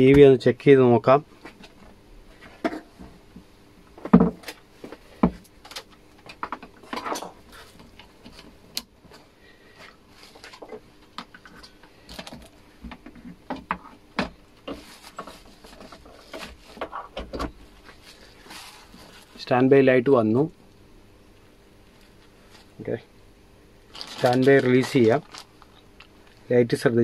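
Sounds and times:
plastic bag crinkling: 17.9 - 19.5, 23.9 - 26.5.

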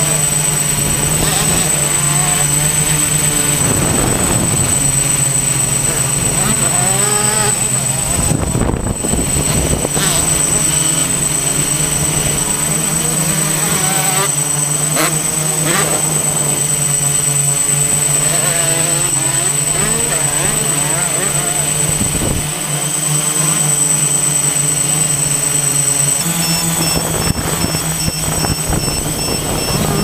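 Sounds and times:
distant motorbikes revving: 0.0 - 30.0
drone propellers humming: 0.0 - 30.0.

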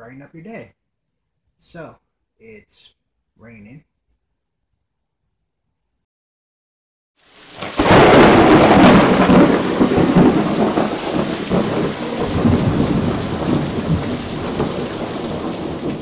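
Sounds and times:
steady rain: 7.2 - 16.0
thunder rumbling: 7.5 - 16.0.

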